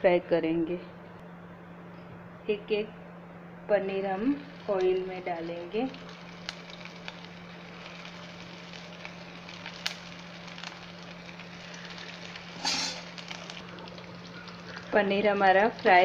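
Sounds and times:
food deep-frying in hot oil: 3.7 - 16.0.

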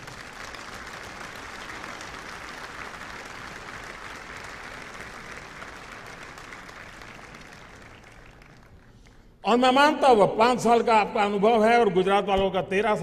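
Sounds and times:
audience applauding: 0.0 - 9.3.

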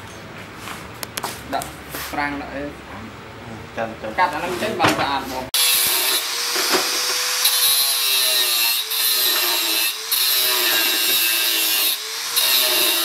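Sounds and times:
angle grinder cutting steel: 5.6 - 13.0.

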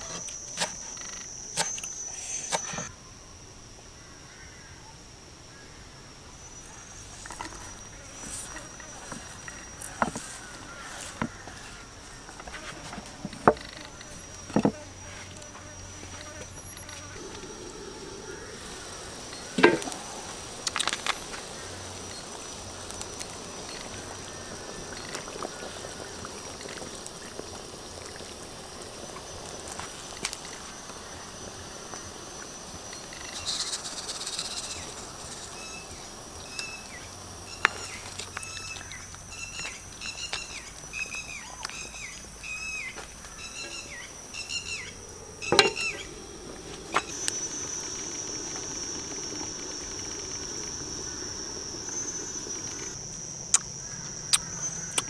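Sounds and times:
insect drone: 0.0 - 55.0
soup bubbling in a wok: 17.2 - 33.7, 45.2 - 53.5
bird chirping: 32.9 - 46.2.

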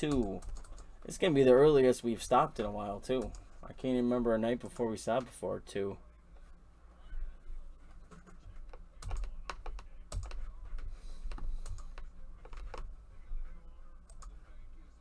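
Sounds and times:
typing on computer keyboard: 9.0 - 10.5, 11.3 - 12.9.

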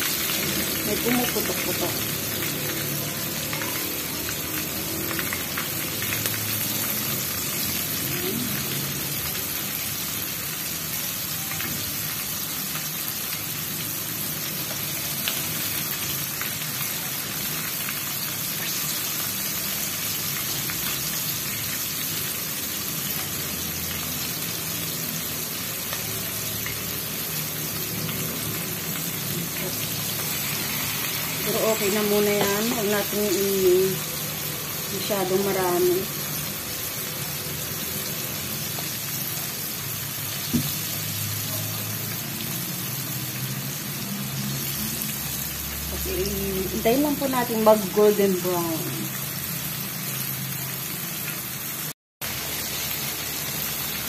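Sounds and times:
chicken deep-frying in hot oil: 0.0 - 54.0.

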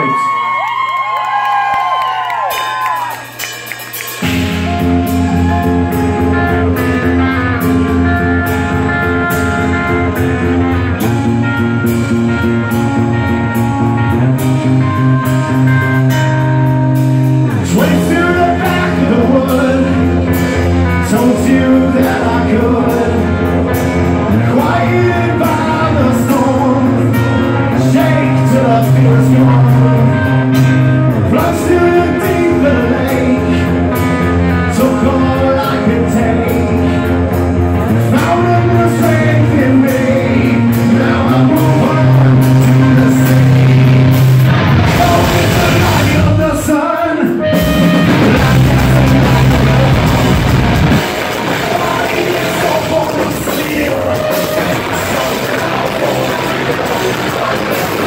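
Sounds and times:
bass guitar: 0.0 - 58.0
drums: 0.0 - 58.0
electric guitar: 0.0 - 58.0
man singing: 17.4 - 58.0.

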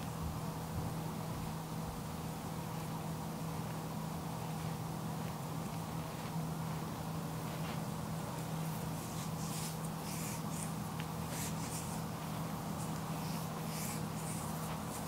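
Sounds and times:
steady low hum: 0.0 - 15.0
hands rubbing a foot: 3.6 - 15.0.

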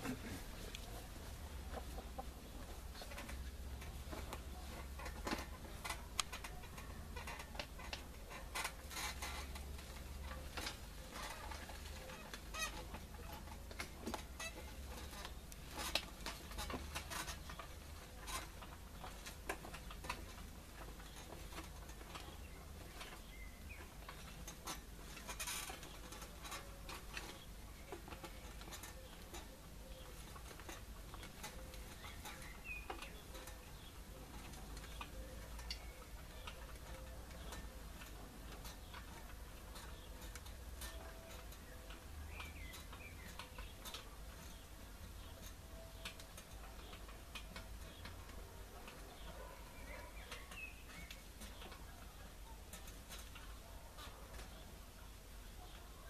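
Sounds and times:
chickens clucking: 0.0 - 7.8, 49.0 - 50.9
garden tractor clicks and knocks: 0.0 - 56.0.

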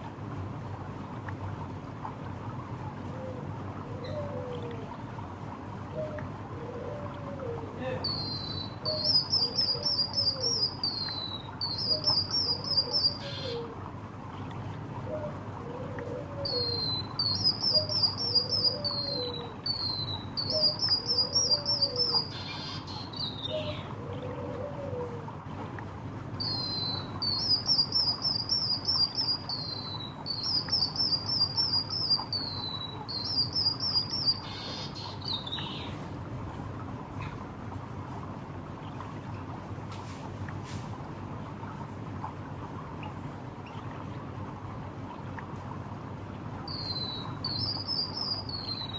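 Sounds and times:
bird singing whistles and trills: 8.0 - 13.6, 16.4 - 23.8, 26.4 - 35.9, 46.7 - 48.9.

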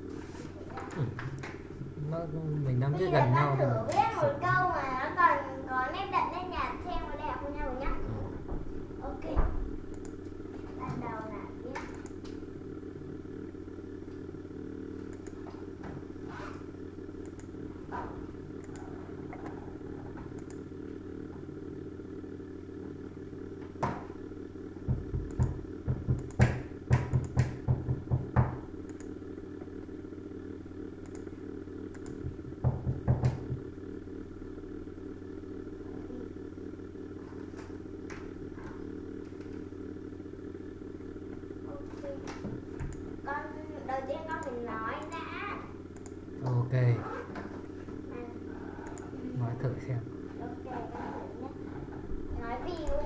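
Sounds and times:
low hum: 0.0 - 53.0
faint clicks: 9.9 - 10.2, 11.7 - 12.4, 15.1 - 15.4, 17.2 - 17.5, 20.3 - 20.6, 28.8 - 29.7, 31.0 - 31.3, 31.9 - 32.2, 46.0 - 46.6, 48.8 - 49.2.

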